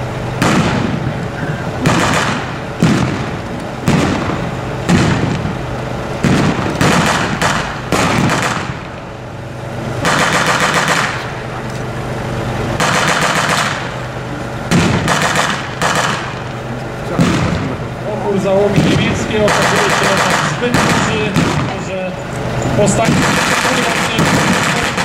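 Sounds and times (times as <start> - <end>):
single sharp gunshots: 0.4 - 1.0, 1.8 - 5.5, 6.2 - 8.9, 10.0 - 11.2, 12.8 - 13.9, 14.7 - 16.4, 17.1 - 17.7, 18.7 - 21.9, 23.0 - 25.0
machine gun bursts: 1.8 - 3.1, 6.2 - 8.7, 10.0 - 11.2, 12.8 - 13.9, 14.7 - 16.4, 18.8 - 21.8, 22.8 - 25.0.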